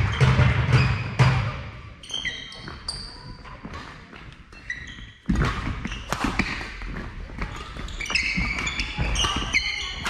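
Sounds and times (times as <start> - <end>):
shoes squeaking on floor: 2.0 - 10.0
racket striking shuttlecock: 5.3 - 6.7.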